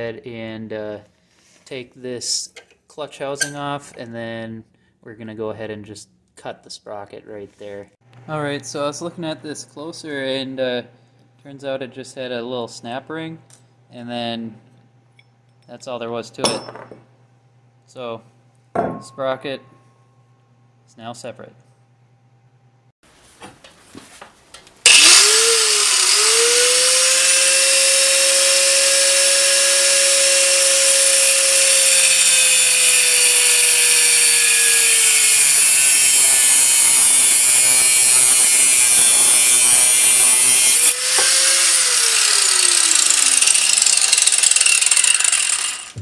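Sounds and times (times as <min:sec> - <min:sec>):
angle grinder grinding metal: 0:24.9 - 0:46.0.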